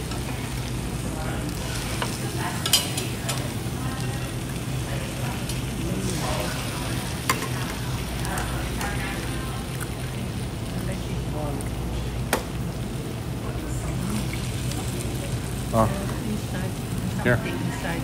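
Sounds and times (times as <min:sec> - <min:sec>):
metal tongs stirring food: 0:00.0 - 0:10.2
meat sizzling on a grill: 0:00.0 - 0:18.0.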